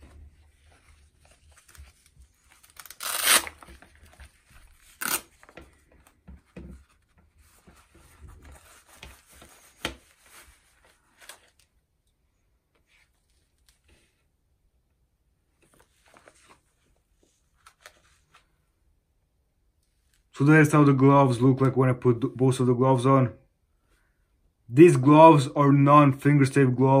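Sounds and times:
glove rubbing: 0.0 - 11.3
hook-and-loop strap ripping: 1.6 - 4.0, 4.8 - 5.6.

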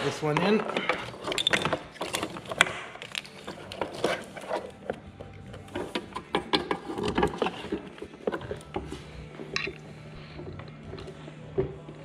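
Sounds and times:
plastic parts clicking and rubbing: 0.0 - 9.8.

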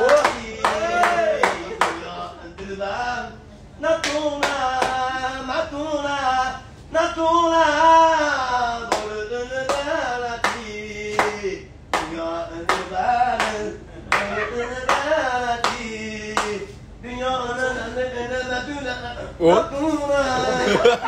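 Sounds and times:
hand clapping: 0.0 - 2.0, 4.0 - 5.0, 8.9 - 16.7.

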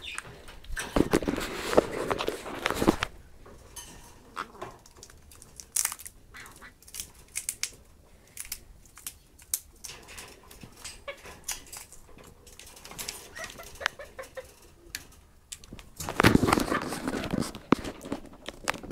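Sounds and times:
rustling noise: 0.0 - 5.9, 9.8 - 18.9
parrots cracking peanut shells: 3.7 - 18.9.

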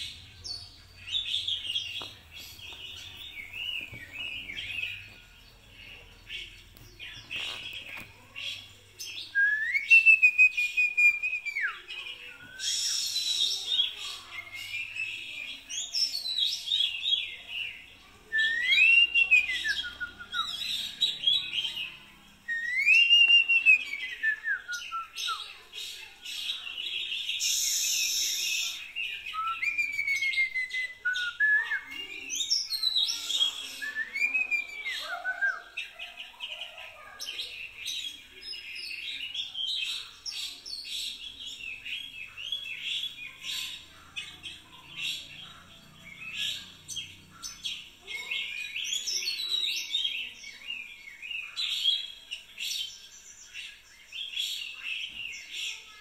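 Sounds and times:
bird chirps: 0.0 - 56.0
bird whistling phrases: 9.3 - 15.0, 18.3 - 20.9, 22.5 - 25.6, 27.3 - 32.4, 33.2 - 35.8.

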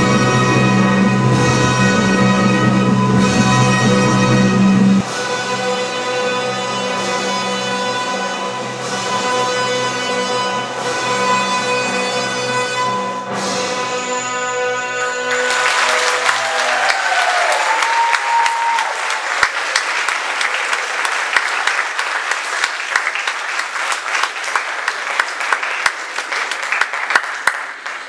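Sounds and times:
audience applauding: 15.0 - 28.0.

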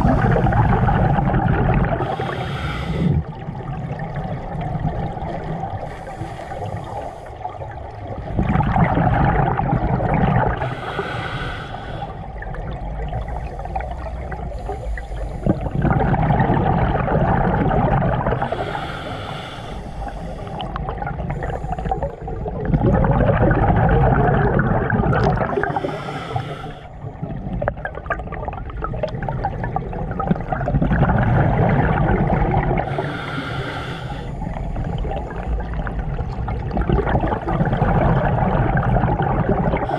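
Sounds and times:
exhale bubbles gushing: 0.0 - 39.9
regulator inhale hiss: 2.0 - 3.2, 5.8 - 7.6, 10.6 - 12.3, 13.2 - 15.7, 18.4 - 22.2, 25.6 - 27.1, 32.8 - 35.5.

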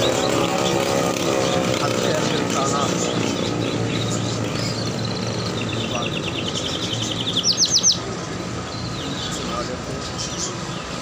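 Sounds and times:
low street noise: 0.0 - 11.0
songbird singing trills: 0.0 - 11.0.

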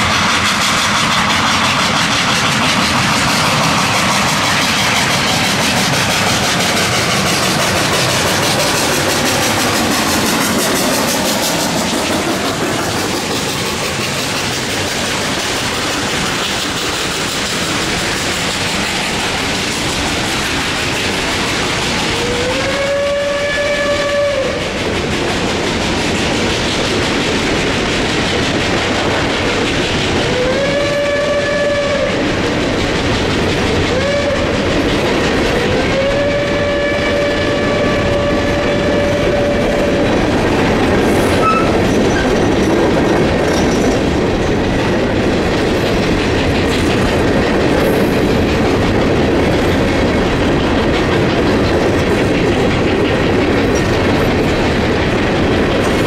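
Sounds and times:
train wheels clickety-clack: 0.0 - 56.0
distant steam whistle blasts: 22.1 - 24.8, 30.2 - 32.2, 33.9 - 34.5, 35.6 - 40.1, 41.3 - 41.8.

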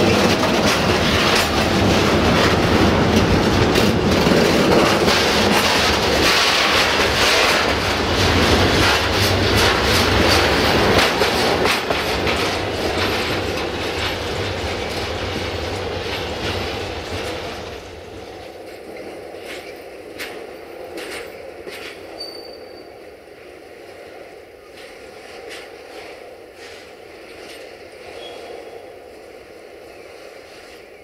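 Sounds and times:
train wheels clattering over rail joints: 0.0 - 22.6.

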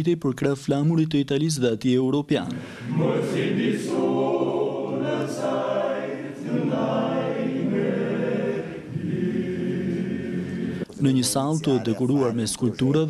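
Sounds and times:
men's choir singing a cappella: 2.6 - 13.0.

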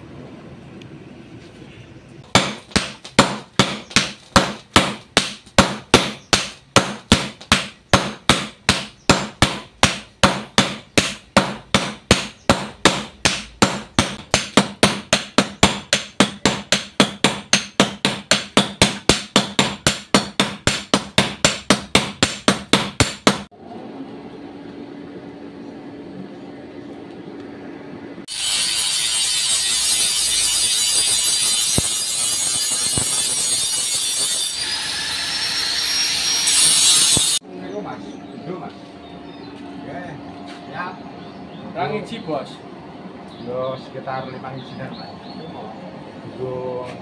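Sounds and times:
hammers striking steel on anvil: 2.2 - 23.5, 28.3 - 34.8.

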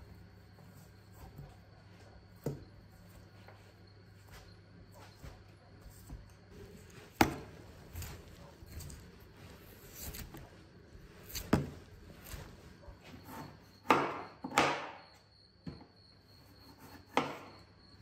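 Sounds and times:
knife cutting and scraping hide: 5.0 - 13.8.

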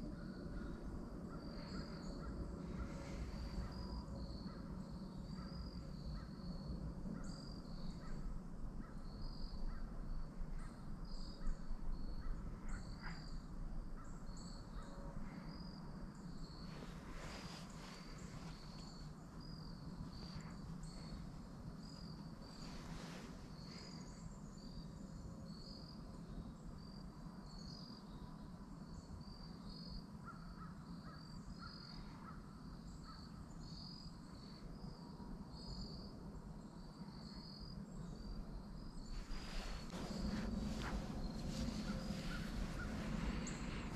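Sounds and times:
low rumble: 39.1 - 43.9.

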